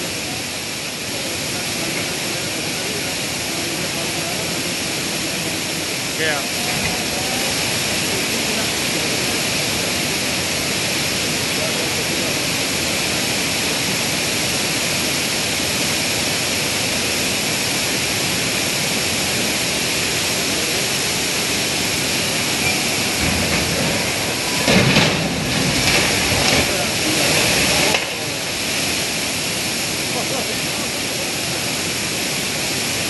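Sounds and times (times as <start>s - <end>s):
river rushing water roar: 0.0s - 33.0s
deep rumble: 21.5s - 29.1s.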